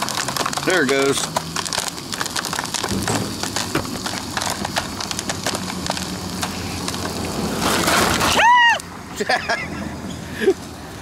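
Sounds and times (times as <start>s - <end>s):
popcorn popping: 0.0s - 7.3s.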